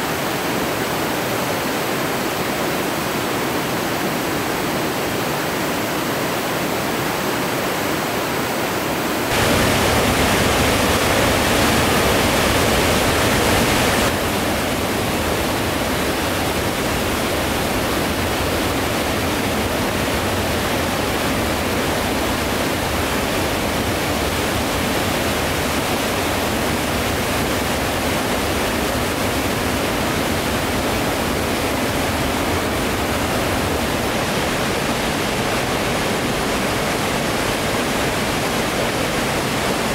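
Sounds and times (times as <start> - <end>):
whitewater rapids rushing: 0.0 - 39.9.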